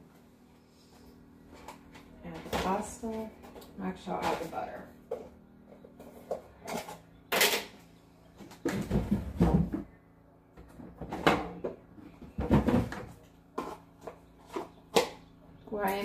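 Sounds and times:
containers knocking and clattering: 10.6s - 15.3s.

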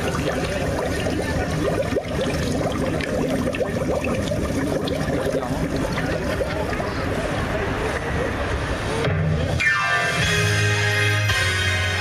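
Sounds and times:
crowd chatter: 0.0s - 3.5s, 4.4s - 9.7s.

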